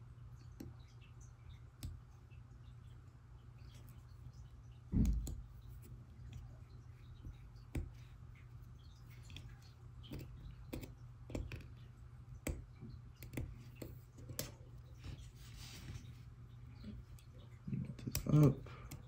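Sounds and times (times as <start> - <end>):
faint low hum: 0.0 - 19.0.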